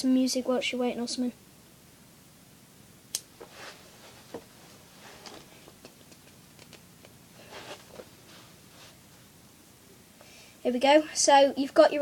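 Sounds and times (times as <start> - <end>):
faint rustling: 3.4 - 9.4.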